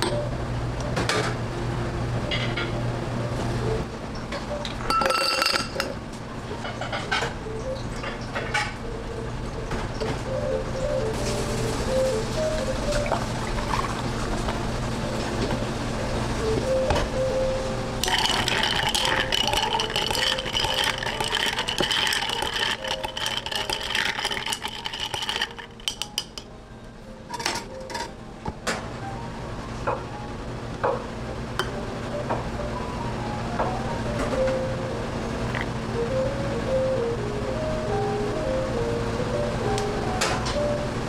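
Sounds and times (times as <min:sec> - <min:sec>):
glassware clinks and knocks: 0:04.8 - 0:05.9
milk pouring over ice: 0:18.0 - 0:26.0.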